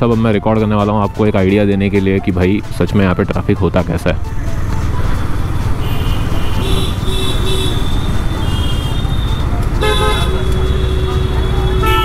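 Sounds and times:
road noise: 0.0s - 12.0s
vehicle horns honking: 5.8s - 12.0s.

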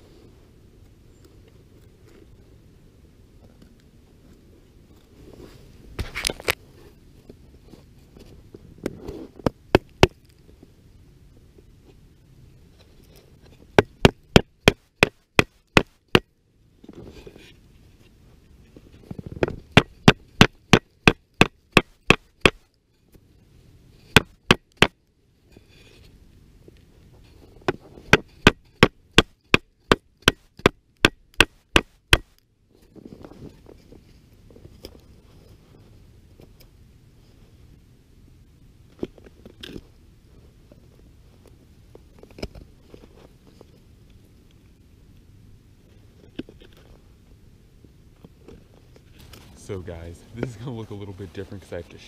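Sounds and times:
soft rustling: 0.0s - 9.5s, 32.3s - 37.8s, 38.8s - 44.8s, 45.8s - 52.0s.

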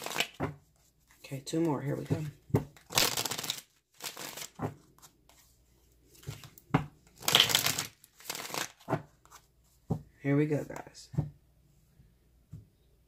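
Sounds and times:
cards being shuffled: 0.0s - 5.5s, 6.1s - 9.5s.

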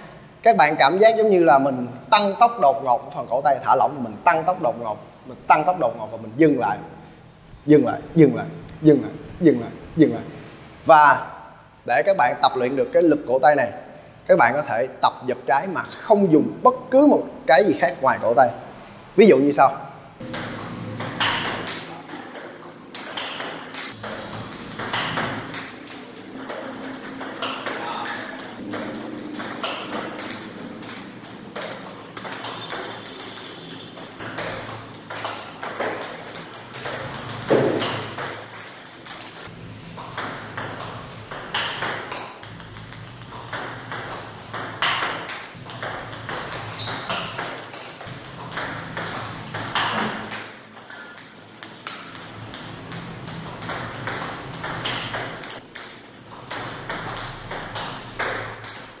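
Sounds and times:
ping-pong ball ticking: 20.2s - 39.5s, 40.1s - 59.0s.

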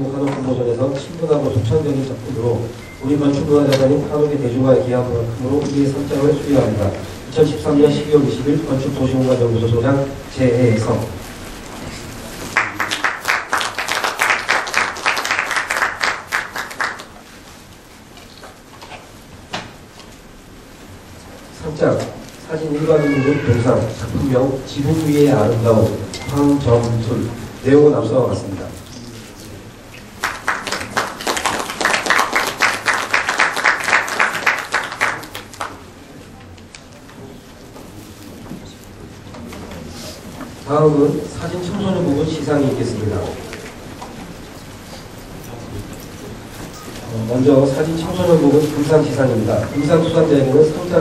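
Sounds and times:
audience applauding: 12.4s - 17.2s, 30.1s - 35.9s.

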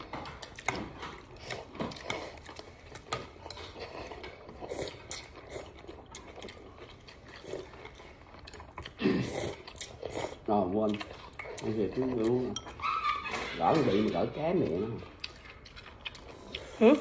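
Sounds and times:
slurping noodles: 1.3s - 6.0s, 8.9s - 10.9s
utensils clinking in ceramic bowl: 12.4s - 12.8s.

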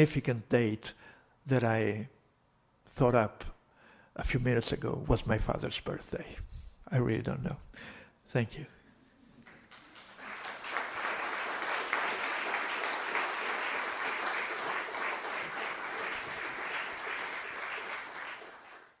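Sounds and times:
audience applauding: 9.4s - 19.0s.

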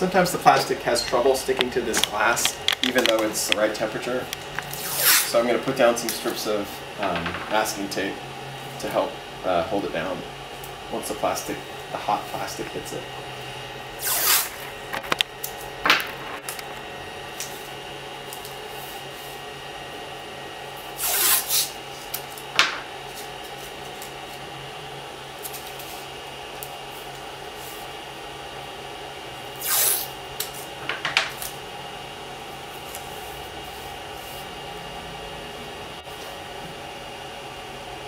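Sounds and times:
fans humming: 0.0s - 38.0s
masking tape tearing: 4.6s - 5.3s, 14.0s - 14.6s, 21.0s - 22.2s, 29.6s - 30.5s.

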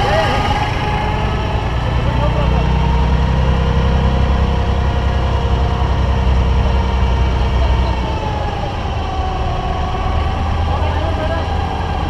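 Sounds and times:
boat diesel engine rumbling: 0.0s - 12.0s.

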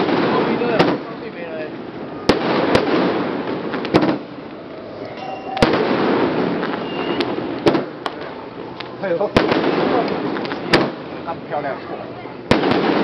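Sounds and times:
fireworks bursting with sharp bangs: 0.0s - 13.0s.

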